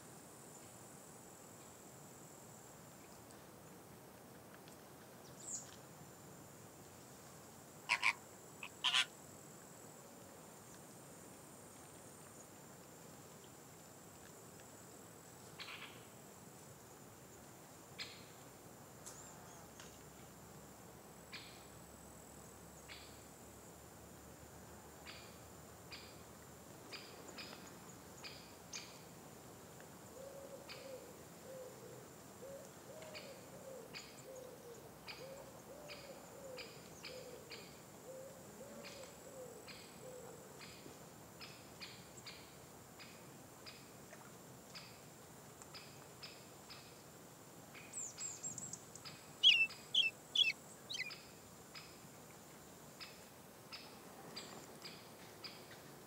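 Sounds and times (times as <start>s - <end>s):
high insect trill: 7.8s - 9.4s, 47.9s - 51.4s
bird hooting: 7.9s - 9.1s, 49.4s - 51.2s
high bird chips: 7.9s - 9.1s, 49.4s - 51.1s.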